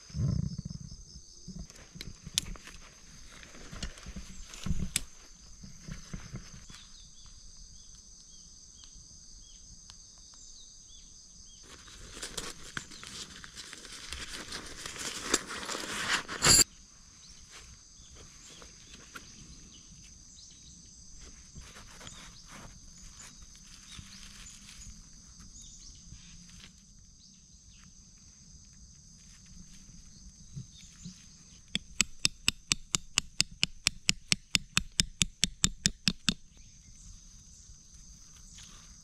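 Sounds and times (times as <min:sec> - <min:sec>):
tent sheet rustling: 0:11.6 - 0:16.6.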